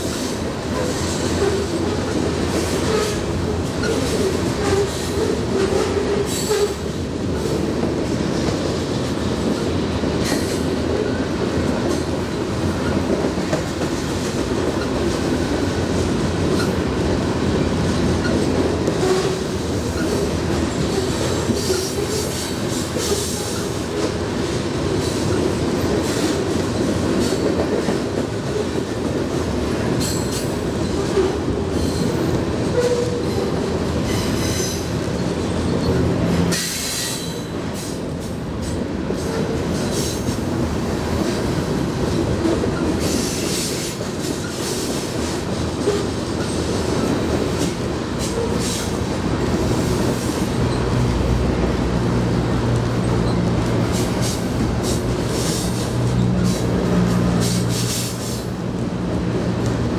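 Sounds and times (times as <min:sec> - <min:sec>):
steel wheels rumbling on rail: 0:00.0 - 0:59.9.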